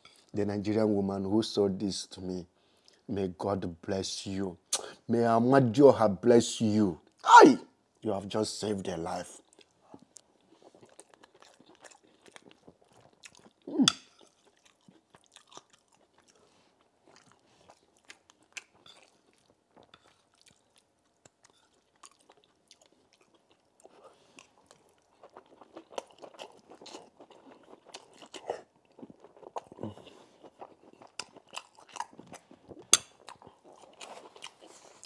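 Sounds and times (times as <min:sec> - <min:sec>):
wet chewing: 0:09.4 - 0:35.0.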